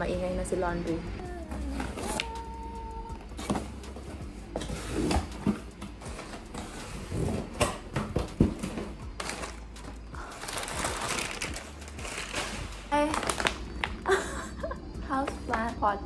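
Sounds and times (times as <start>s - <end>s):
packing paper crinkling: 9.2s - 14.2s.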